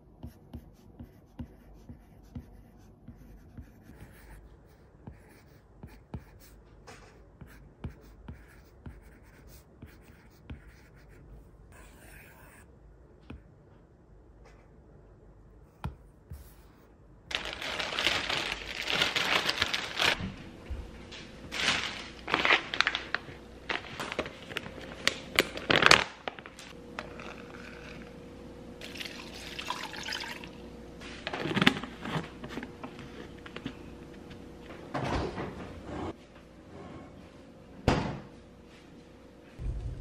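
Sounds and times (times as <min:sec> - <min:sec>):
faint steady hum: 0:00.0 - 0:40.0
paper pouch rustling and tearing: 0:17.3 - 0:20.2, 0:21.5 - 0:27.8.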